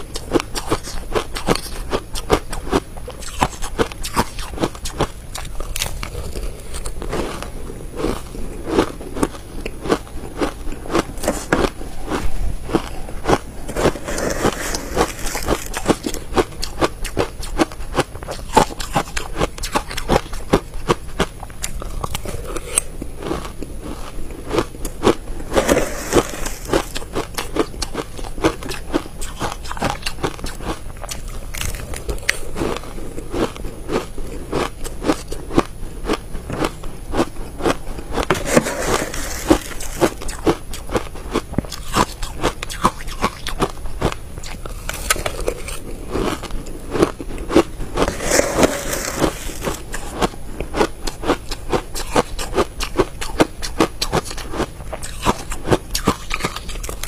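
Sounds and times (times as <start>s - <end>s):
crunching ice chewing: 0.0s - 57.0s.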